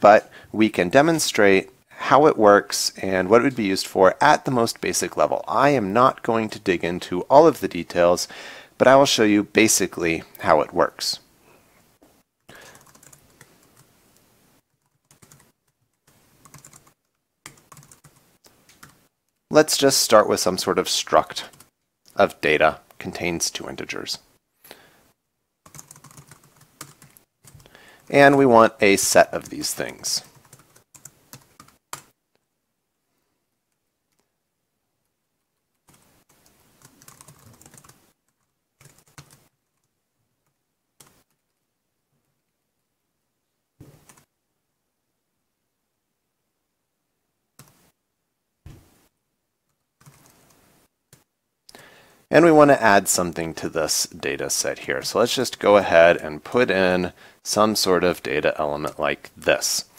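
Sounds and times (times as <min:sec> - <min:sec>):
computer keyboard typing: 0:12.6 - 0:13.9, 0:14.7 - 0:19.0, 0:25.6 - 0:28.4, 0:30.2 - 0:32.1, 0:35.8 - 0:41.6, 0:43.9 - 0:44.3, 0:47.6 - 0:47.8, 0:49.7 - 0:50.5.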